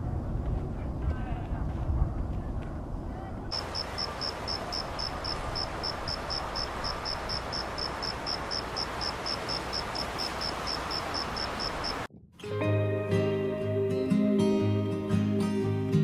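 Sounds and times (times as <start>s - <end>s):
steady outdoor hiss: 2.3s - 12.1s
cricket chirping: 3.6s - 12.1s.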